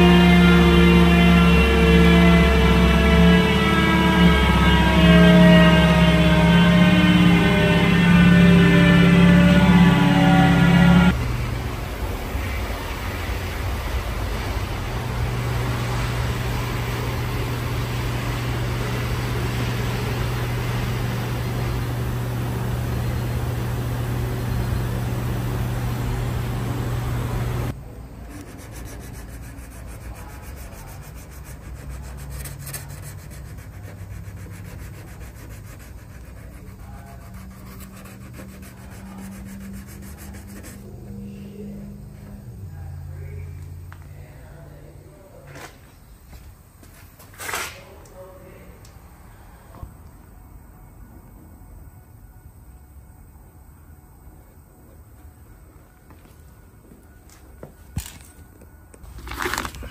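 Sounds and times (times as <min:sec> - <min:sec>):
power sander grinding: 0:00.0 - 0:11.5, 0:14.3 - 0:27.7
hand rubbing and scraping: 0:28.3 - 0:41.4.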